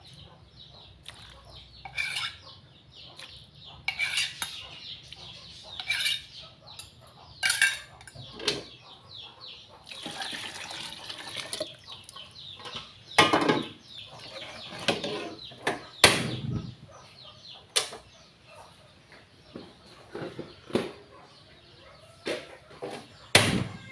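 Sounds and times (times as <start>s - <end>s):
metal ladle scraping pot: 1.8s - 2.4s, 3.9s - 4.6s, 5.8s - 6.4s, 14.2s - 15.6s
water pouring into pot: 9.9s - 11.8s
loud metal knocks: 23.3s - 23.9s.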